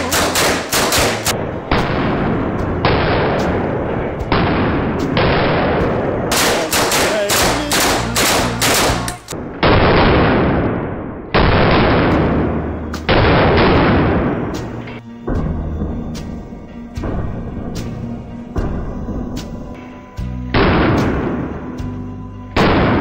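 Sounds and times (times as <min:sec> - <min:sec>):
submachine gun bursts echoing: 0:00.0 - 0:01.3, 0:06.3 - 0:09.3
sharp single gunshots: 0:00.0 - 0:14.7, 0:22.6 - 0:23.0.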